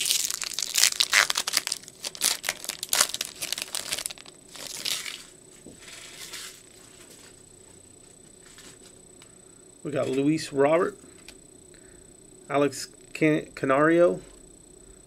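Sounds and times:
wrapper crinkling and tearing: 0.0s - 5.3s.

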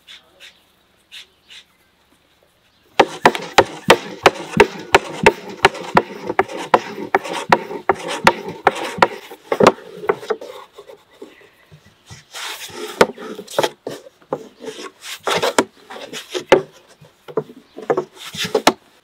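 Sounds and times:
rolling pin knocking on wooden board: 3.0s - 10.5s, 15.3s - 18.8s
rolling pin rubbing dough: 3.0s - 11.4s, 12.0s - 18.8s.

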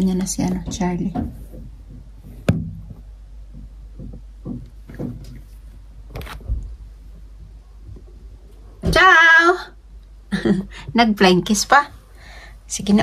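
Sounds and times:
low steady hum: 0.0s - 13.0s
knocks and bumps from car: 0.6s - 5.5s.

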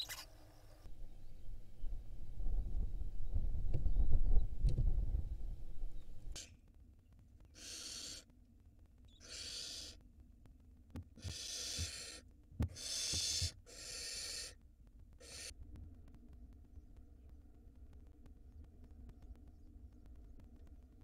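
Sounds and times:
owl chicks hissing: 7.6s - 8.3s, 9.1s - 10.0s, 11.2s - 14.6s, 15.2s - 15.5s.

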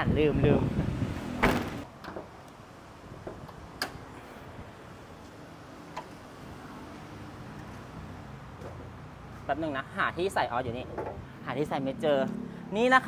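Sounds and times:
car boot lid slamming: 1.4s - 1.9s.

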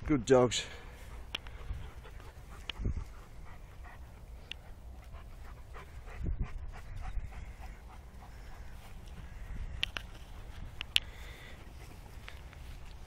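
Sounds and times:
dog panting: 0.8s - 9.5s.

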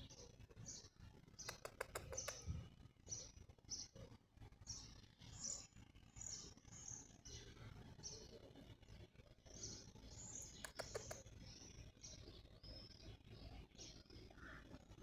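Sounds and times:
faint birds chirping: 0.0s - 15.0s.

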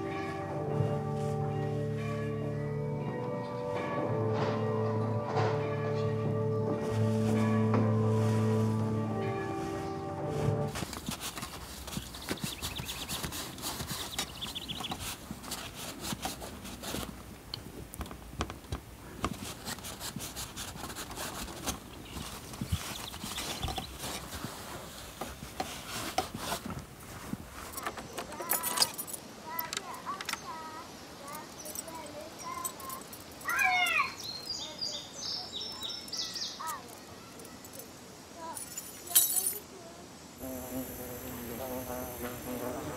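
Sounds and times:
cloth rustling and scraping: 6.6s - 30.1s
birds singing and calling: 10.8s - 15.7s, 21.4s - 24.4s, 27.8s - 37.9s.

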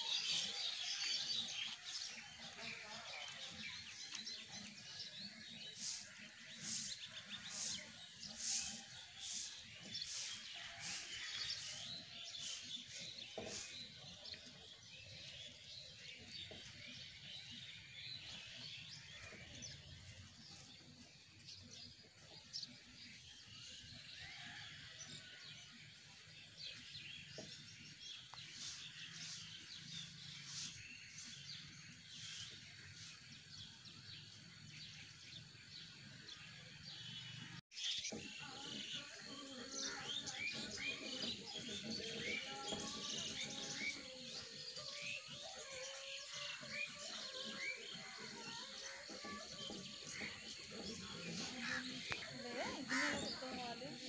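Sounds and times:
small birds chirping: 0.0s - 54.0s
hand broom swishing water: 5.7s - 13.8s.

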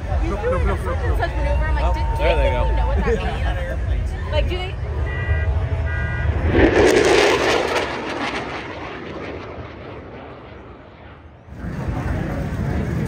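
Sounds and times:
fighter jet flying past: 4.8s - 13.0s.

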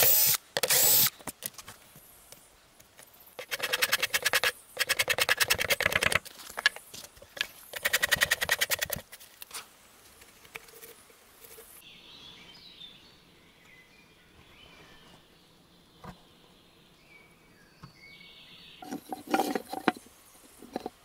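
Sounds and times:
bark scraper scraping log: 3.4s - 6.8s, 18.8s - 20.0s
birds chirping faintly: 11.6s - 21.0s.

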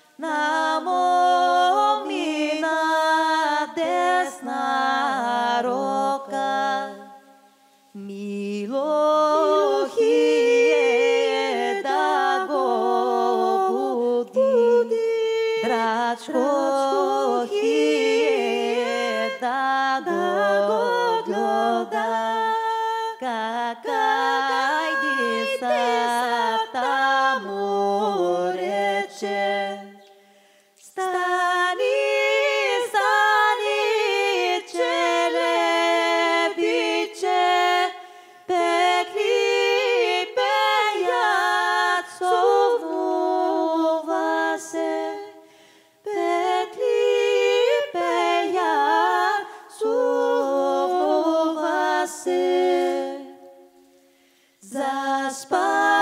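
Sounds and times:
group singing in harmony: 0.0s - 54.0s, 54.6s - 56.0s.

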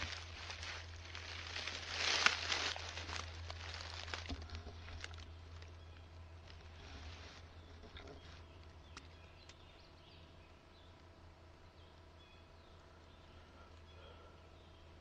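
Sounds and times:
twig clicks: 0.0s - 5.8s, 7.8s - 9.6s
rustling in dry leaves: 0.0s - 8.7s.

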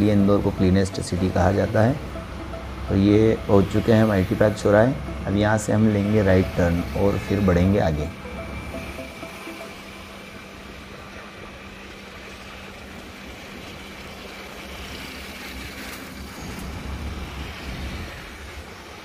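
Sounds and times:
low steady hum: 0.0s - 18.7s
vehicle engine hum: 0.0s - 19.0s.

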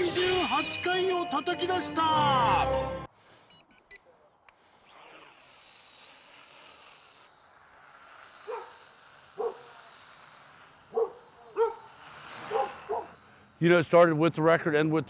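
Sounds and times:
high whine of electric motors: 4.8s - 14.8s
dog barking: 8.5s - 8.7s, 9.4s - 9.7s, 10.9s - 11.9s, 12.5s - 13.2s.

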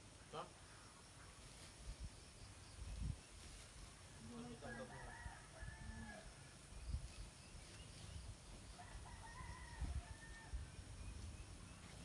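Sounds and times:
rooster crowing faintly: 4.2s - 6.5s, 8.7s - 10.8s.

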